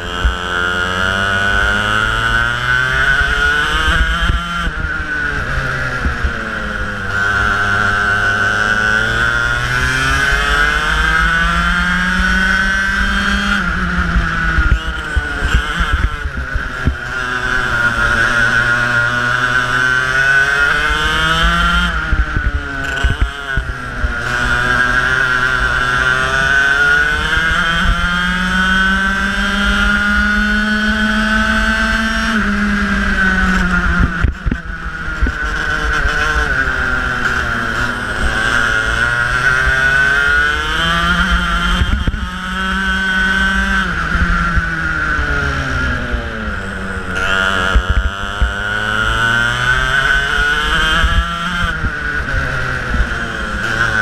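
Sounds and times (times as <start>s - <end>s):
kart engine revving: 0.0s - 54.0s.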